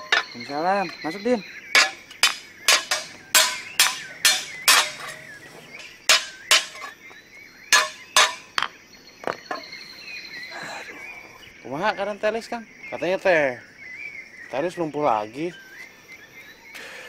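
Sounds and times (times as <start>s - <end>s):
hammer blows ringing: 1.8s - 6.9s, 7.7s - 8.6s.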